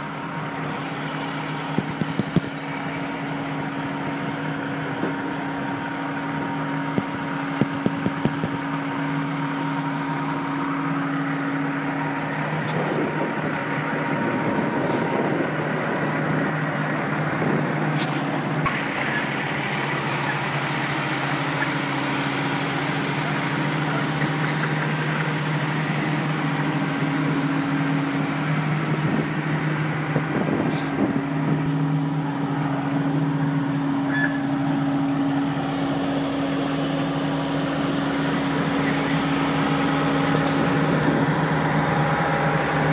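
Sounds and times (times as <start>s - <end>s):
diesel engine idling: 0.0s - 42.9s.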